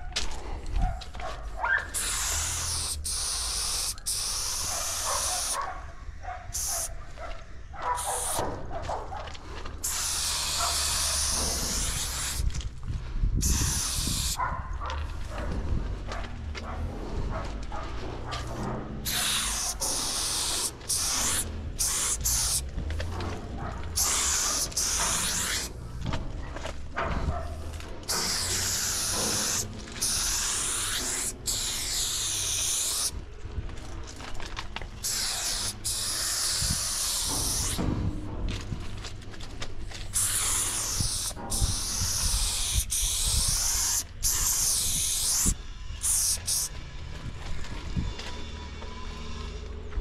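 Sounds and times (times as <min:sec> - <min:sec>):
spray-paint can hissing: 0:01.9 - 0:05.6, 0:06.5 - 0:06.9, 0:08.0 - 0:08.4, 0:09.8 - 0:12.5, 0:13.4 - 0:14.4, 0:19.0 - 0:22.7, 0:23.9 - 0:25.8, 0:28.0 - 0:33.2, 0:35.0 - 0:37.8, 0:40.1 - 0:46.7.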